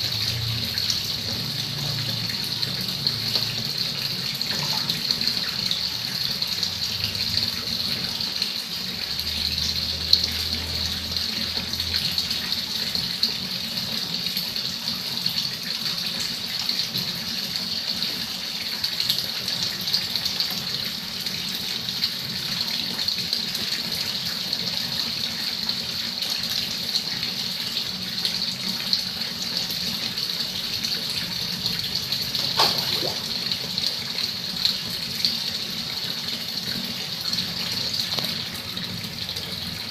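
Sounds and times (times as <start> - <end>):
tap water splashing into pond: 0.2 - 6.6, 30.8 - 35.5.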